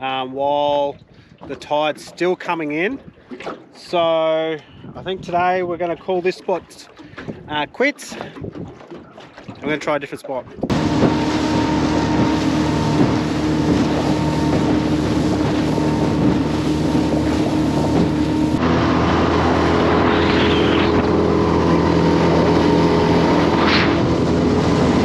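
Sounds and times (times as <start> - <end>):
wind buffeting microphone: 4.7 - 9.8, 10.4 - 25.0
outboard motor running: 10.4 - 25.0.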